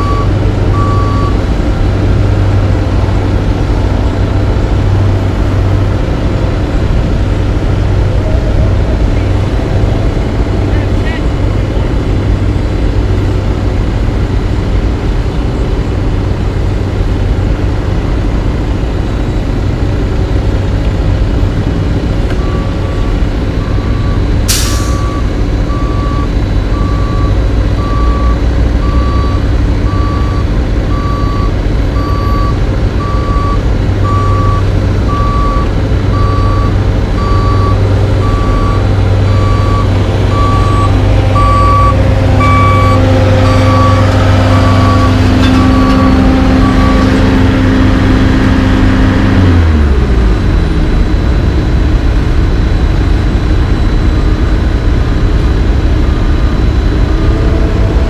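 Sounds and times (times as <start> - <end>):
higher reversing beeper: 0.0 - 1.4, 22.4 - 51.3
reversing alarm beeping: 0.0 - 1.4, 22.4 - 48.7
heavy diesel engine running: 0.0 - 58.0.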